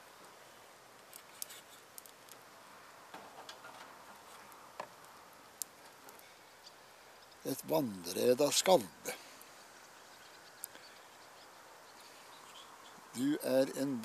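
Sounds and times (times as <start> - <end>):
faint steady hiss: 0.0 - 14.0
light irregular clicks: 10.5 - 10.9.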